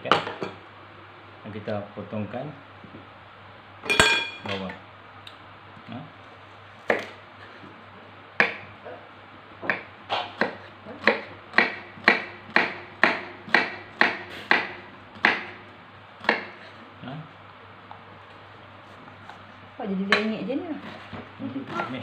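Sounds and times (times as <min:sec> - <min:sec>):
knife chopping onion on board: 0:06.8 - 0:07.2, 0:08.4 - 0:08.7, 0:09.6 - 0:15.6, 0:16.2 - 0:16.6.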